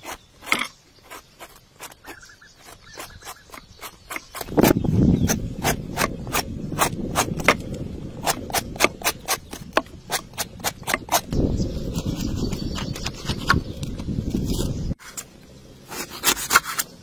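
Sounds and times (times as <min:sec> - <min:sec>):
peeler scraping fruit skin: 0:00.0 - 0:17.0
low rumble: 0:04.5 - 0:15.9.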